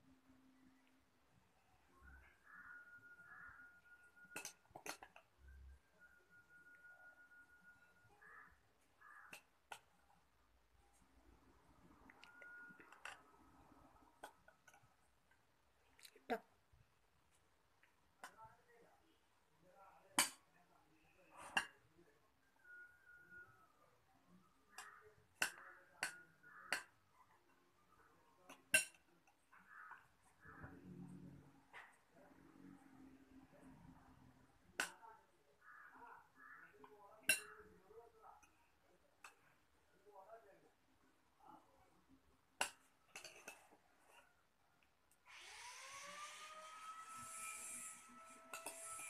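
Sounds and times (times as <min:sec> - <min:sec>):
whir with a hiss: 0:45.2 - 0:49.0.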